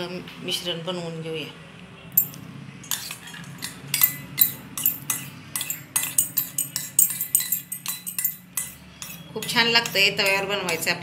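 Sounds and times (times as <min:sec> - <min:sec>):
metal spoon scraping steel bowls: 0:02.2 - 0:11.0.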